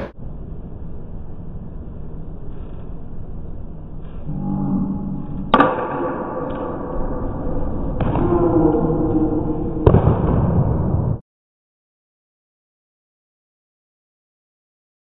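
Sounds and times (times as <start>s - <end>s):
low background rumble: 0.0s - 11.2s
bat striking ball: 5.4s - 8.3s.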